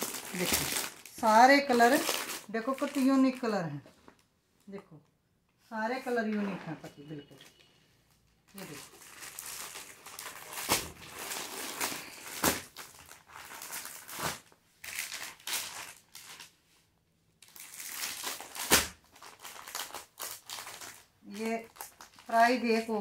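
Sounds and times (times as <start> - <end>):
plastic packaging crinkling: 0.0 - 4.3, 8.5 - 16.6, 17.4 - 22.7.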